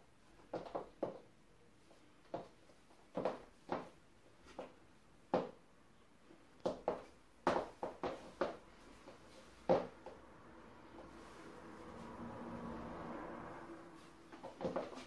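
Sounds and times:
high heels clicking on wooden floor: 0:02.3 - 0:03.9, 0:06.6 - 0:10.2, 0:14.3 - 0:15.0.

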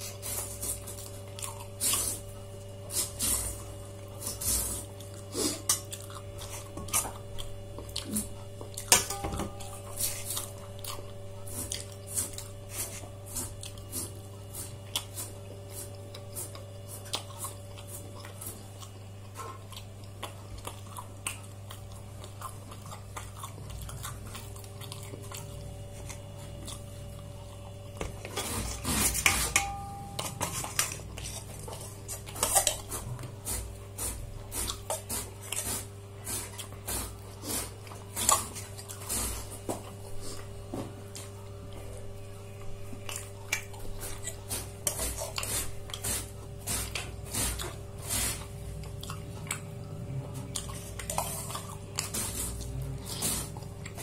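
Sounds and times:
steady low hum: 0:00.0 - 0:54.0
dishes and cutlery clinking: 0:08.9 - 0:10.4, 0:28.4 - 0:31.4.

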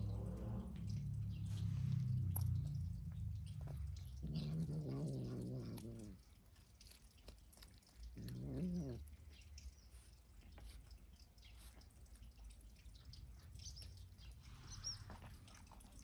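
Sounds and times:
cat growling low: 0:00.0 - 0:09.4.

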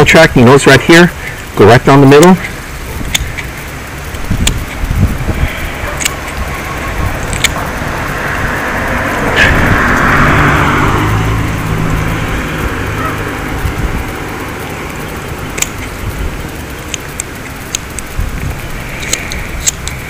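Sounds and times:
vehicle passing by: 0:02.1 - 0:20.0
light sharp clicks: 0:15.5 - 0:16.0, 0:19.0 - 0:20.0.

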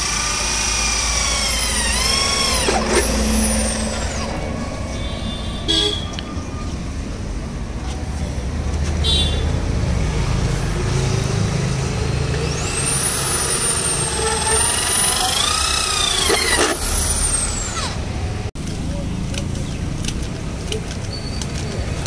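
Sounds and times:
electric drill boring: 0:00.0 - 0:04.8, 0:12.2 - 0:18.1.

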